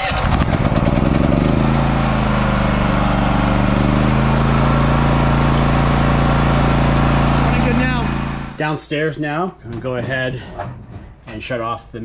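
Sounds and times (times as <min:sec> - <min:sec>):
generator engine running: 0:00.0 - 0:08.7.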